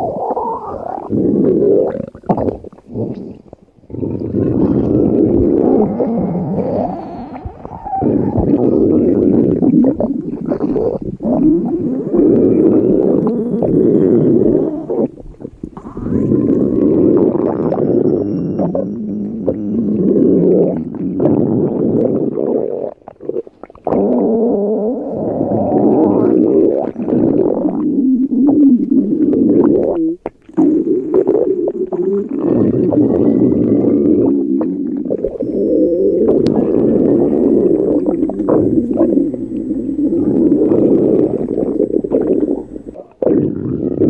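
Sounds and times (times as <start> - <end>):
stomach rumbling and gurgling: 0.0 - 44.0.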